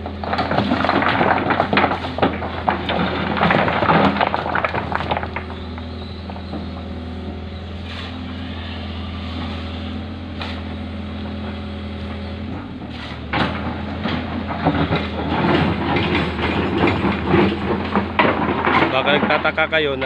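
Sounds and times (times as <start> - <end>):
excavator diesel engine running: 0.0 - 20.0
stones knocking and clattering: 0.1 - 6.6, 13.5 - 19.6.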